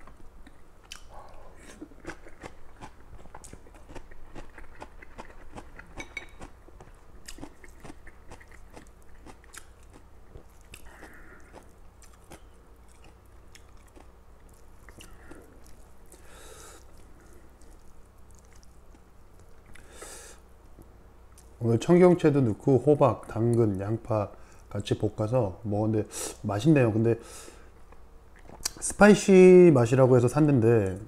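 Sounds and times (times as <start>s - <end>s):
man chewing noodles: 0.0s - 20.2s.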